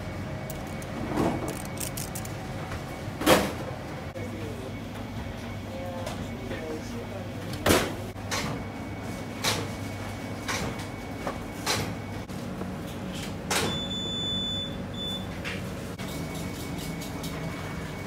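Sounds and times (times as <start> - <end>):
steady machine hum: 0.0 - 10.4.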